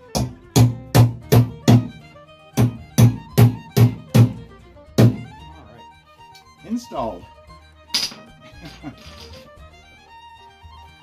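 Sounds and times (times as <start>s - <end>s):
hammer driving nails: 2.6s - 4.4s.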